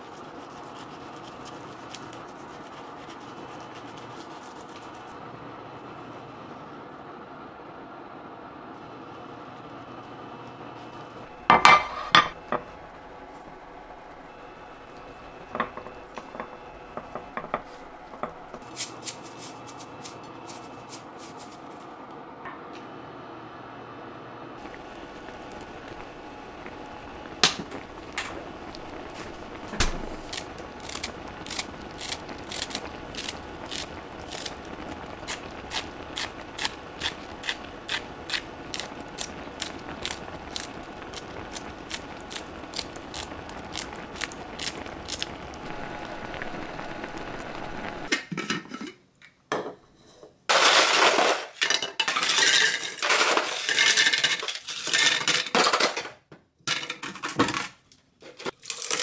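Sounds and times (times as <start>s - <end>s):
broth simmering in a pan: 0.0s - 21.4s, 24.6s - 48.1s
ice cubes rattling into a jar: 50.5s - 56.0s.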